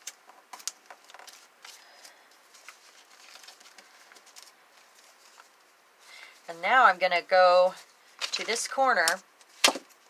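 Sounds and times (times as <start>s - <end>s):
paper crinkling and rustling: 0.0s - 5.8s, 8.1s - 8.8s.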